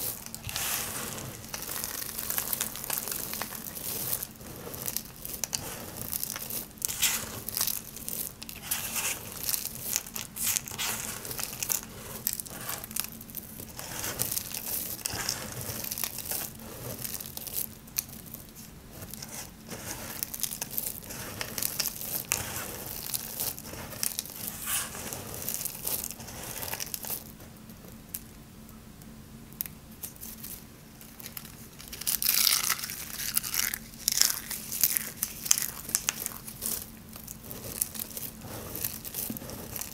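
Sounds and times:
soap flakes crunching and rustling: 0.0 - 28.3, 30.0 - 39.9.

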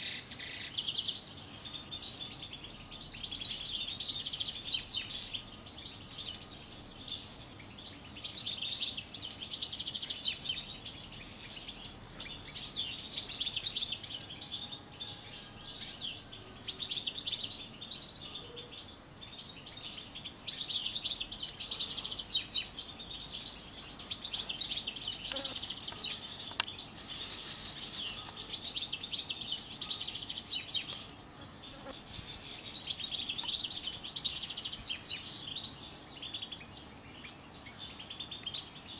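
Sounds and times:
goldfinch twittering song: 0.0 - 38.9.

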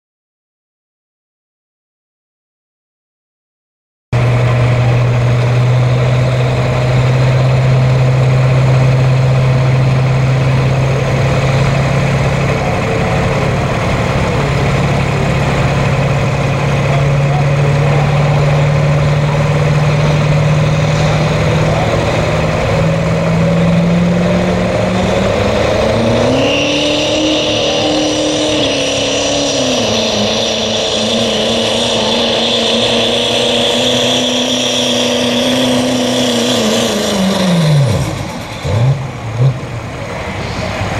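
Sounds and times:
diesel truck engine under load: 4.2 - 40.9
turbo whistle: 25.0 - 36.6.

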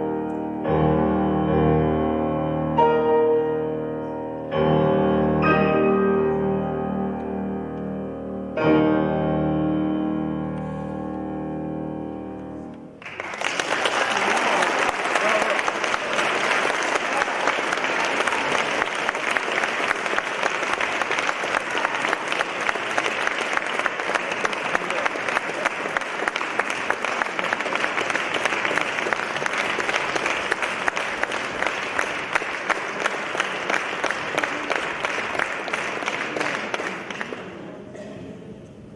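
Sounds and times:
audience applauding: 13.0 - 37.7.

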